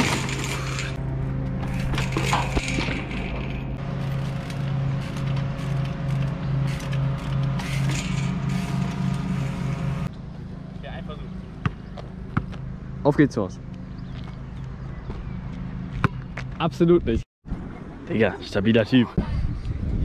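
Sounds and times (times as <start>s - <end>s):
bike wheels and chain clanking: 0.0s - 1.0s, 1.6s - 10.1s.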